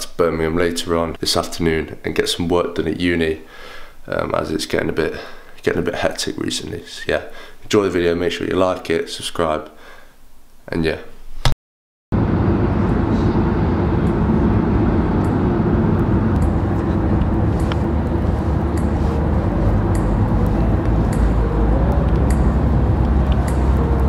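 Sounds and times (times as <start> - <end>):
road and engine noise in car: 12.2 - 24.0.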